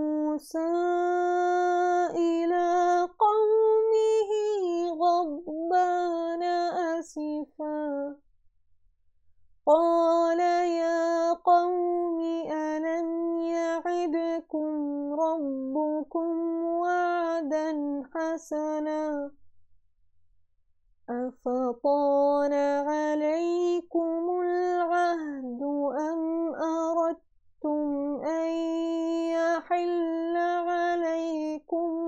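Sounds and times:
woman chanting melodically: 0:09.7 - 0:19.3, 0:21.2 - 0:32.0.

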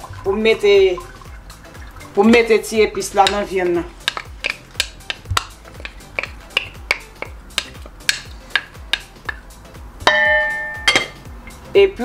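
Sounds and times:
background music: 0:00.0 - 0:12.0
wooden spoon scraping a bowl: 0:03.9 - 0:09.1.

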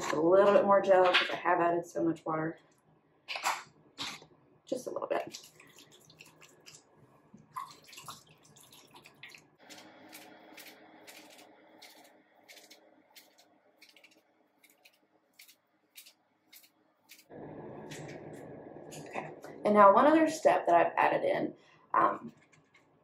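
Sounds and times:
wet hair squishing in hands: 0:05.2 - 0:09.5.

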